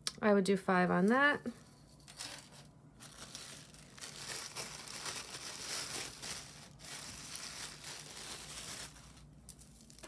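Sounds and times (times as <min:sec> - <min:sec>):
plastic baggie crinkling: 0:02.9 - 0:10.0.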